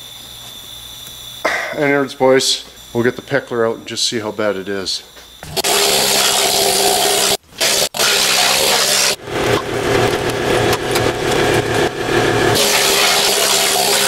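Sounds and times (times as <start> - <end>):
compressed-air equipment running: 5.4 - 14.0.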